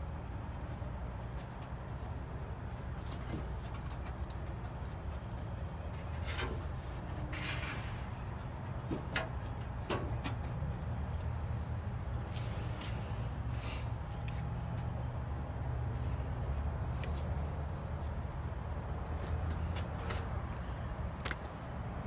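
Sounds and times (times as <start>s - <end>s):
light clicks of wires handled: 14.0s - 14.9s.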